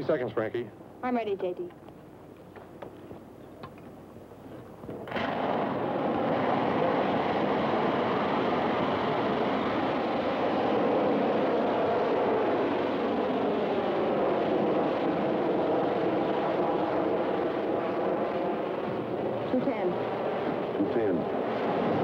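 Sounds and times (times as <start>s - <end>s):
rocket motor igniting: 4.8s - 22.0s
rushing roar of rocket exhaust: 4.8s - 22.0s.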